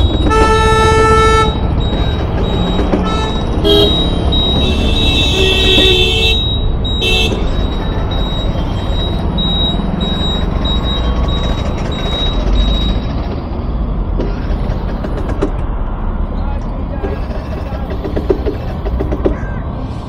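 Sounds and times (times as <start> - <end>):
vehicle horn honking: 0.0 - 1.7, 3.0 - 7.5
engines and passing cars rumbling: 0.0 - 20.0
short high beeps: 1.2 - 13.2.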